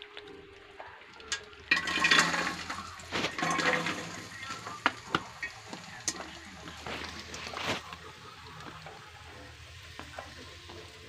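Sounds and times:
coconut sizzling in hot oil: 0.0s - 11.0s
pieces clicking against pot: 1.2s - 7.8s.

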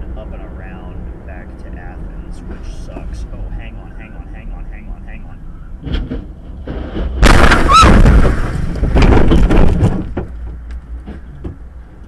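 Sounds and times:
road noise: 0.0s - 12.0s
vehicle crash impact: 5.8s - 11.2s.

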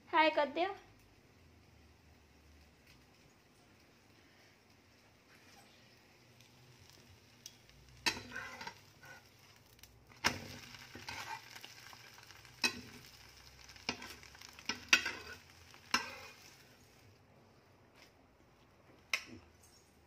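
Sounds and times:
light frying sizzle: 0.0s - 20.0s
metal spatula clacking on pan: 8.0s - 8.8s, 12.6s - 13.2s, 13.8s - 16.4s.

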